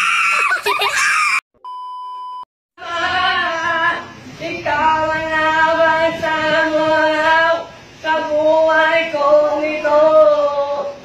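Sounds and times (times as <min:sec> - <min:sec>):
steady test tone beep: 0:01.6 - 0:02.5.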